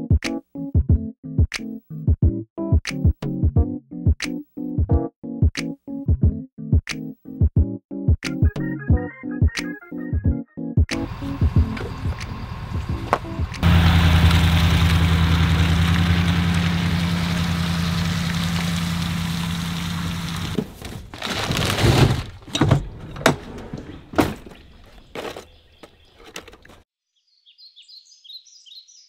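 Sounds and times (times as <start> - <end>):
steady low hum: 11.0 - 20.6
plastic tackle boxes clattering: 20.6 - 26.8.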